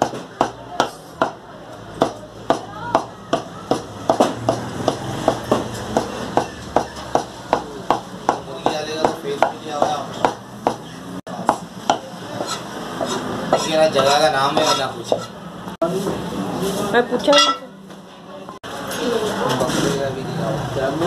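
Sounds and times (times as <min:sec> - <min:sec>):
cleaver chopping meat on wood: 0:00.0 - 0:01.4, 0:02.0 - 0:13.7.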